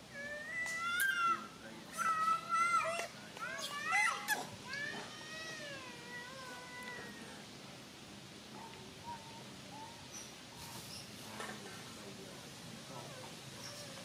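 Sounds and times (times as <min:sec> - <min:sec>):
infant monkey crying: 0:00.0 - 0:07.3, 0:12.9 - 0:14.0.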